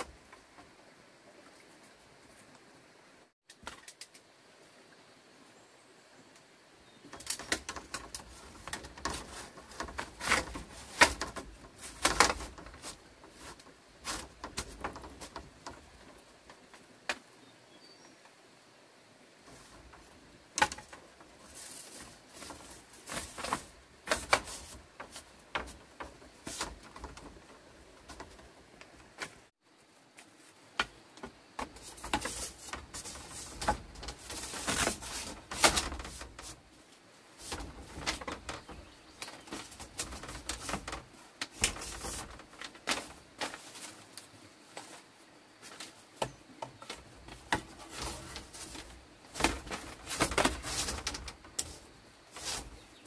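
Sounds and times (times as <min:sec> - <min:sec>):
bamboo poles knocking and clattering: 0:03.5 - 0:04.3, 0:07.0 - 0:17.4, 0:19.4 - 0:29.5, 0:30.1 - 0:36.8, 0:37.4 - 0:53.0.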